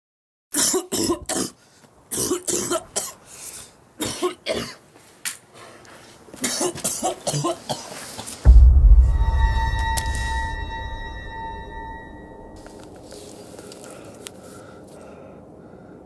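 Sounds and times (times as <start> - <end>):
man coughing: 6.4 - 8.0.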